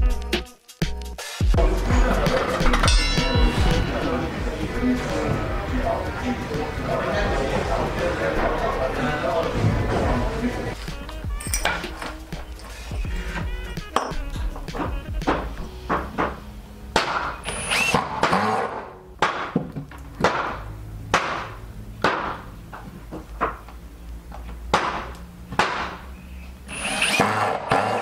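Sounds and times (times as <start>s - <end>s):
wood and tools clattering: 10.8s - 16.4s
cordless drill driving screws: 17.4s - 18.8s, 26.7s - 28.0s.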